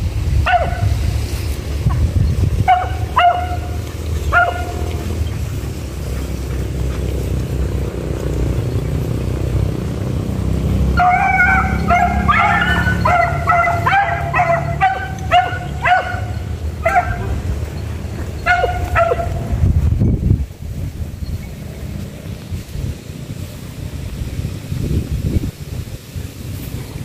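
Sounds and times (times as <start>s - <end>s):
steady low rumble: 0.0s - 27.0s
beagle yelping: 2.7s - 4.9s, 11.0s - 17.5s, 18.4s - 19.4s.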